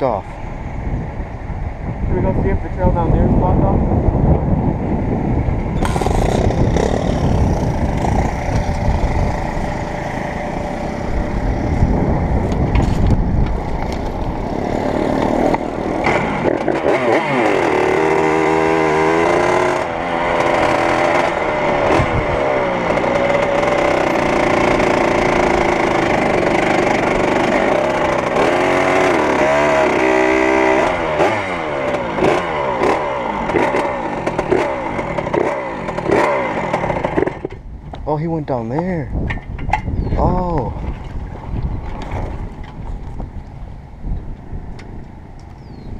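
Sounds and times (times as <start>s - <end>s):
motorbike rattling: 5.4s - 45.9s
two-stroke motorbike engine revving: 5.7s - 13.0s, 13.8s - 37.6s.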